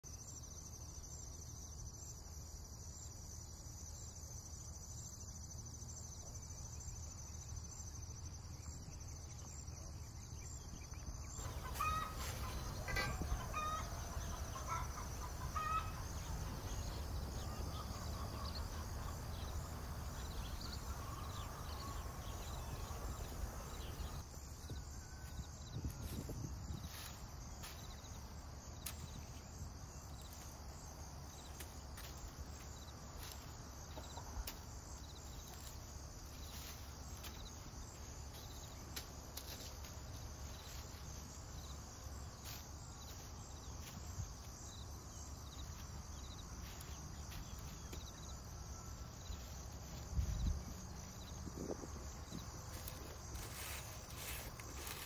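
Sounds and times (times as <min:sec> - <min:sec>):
insects chirping: 0:00.0 - 0:55.0.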